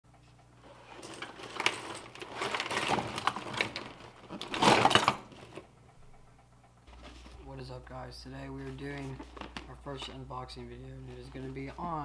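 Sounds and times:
plastic items clicking and rustling: 0.6 - 5.7, 8.9 - 10.2.

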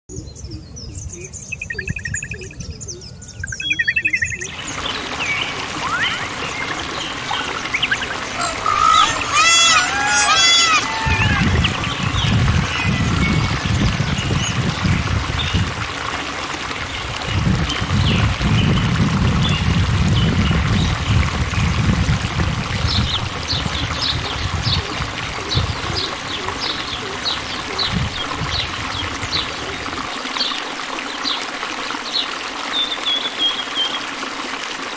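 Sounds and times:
songbirds chirping and trilling: 0.1 - 15.8, 22.8 - 31.4
rising bird whistles: 5.8 - 6.6.

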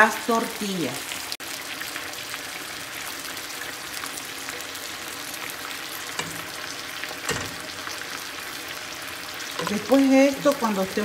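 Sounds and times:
broth simmering and bubbling: 1.2 - 11.0
spoon stirring in pot: 6.0 - 8.1, 9.4 - 10.3
spoon knocking on pot: 6.1 - 8.0, 9.5 - 10.1.

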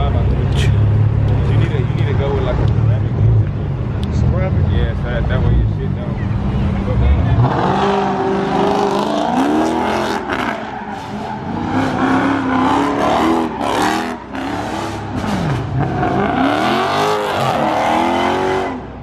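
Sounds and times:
car engine revving: 0.0 - 19.0.

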